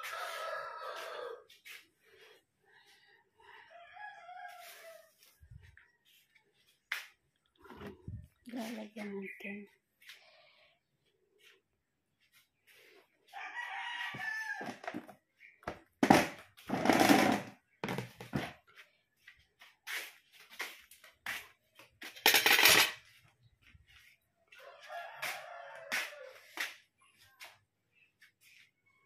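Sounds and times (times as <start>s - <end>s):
rooster crowing: 0.0s - 1.6s, 3.6s - 5.3s, 13.3s - 14.9s, 24.6s - 26.4s.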